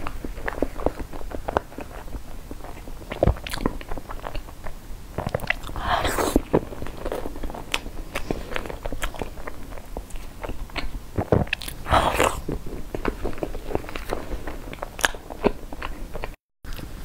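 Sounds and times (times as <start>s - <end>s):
wet chewing and lip smacks: 0.0s - 6.6s.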